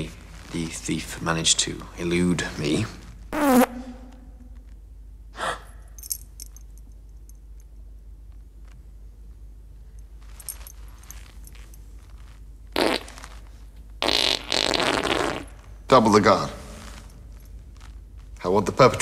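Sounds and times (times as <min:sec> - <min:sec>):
comic fart sounds: 0:03.3 - 0:04.2, 0:12.7 - 0:13.4, 0:14.0 - 0:15.7.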